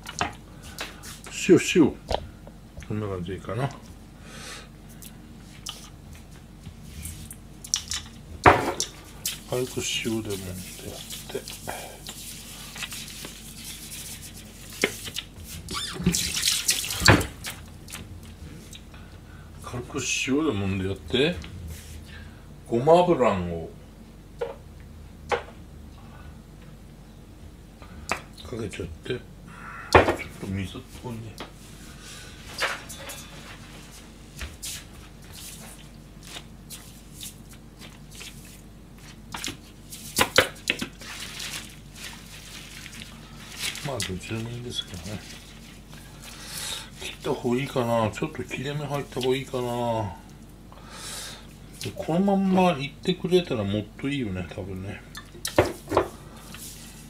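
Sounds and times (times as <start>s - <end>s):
kitchen paper rustling and crinkling: 8.9s - 17.8s, 32.3s - 49.9s
wet splashing in a sink: 9.2s - 18.0s, 39.4s - 46.4s.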